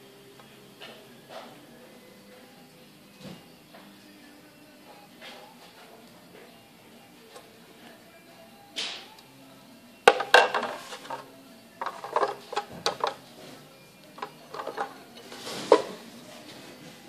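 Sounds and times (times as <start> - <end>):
plastic plate clicking and knocking: 10.1 - 11.2, 11.8 - 13.2.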